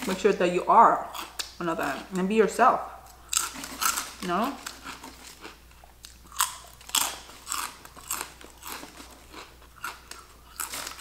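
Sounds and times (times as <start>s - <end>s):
crunching potato chips: 3.1s - 11.0s.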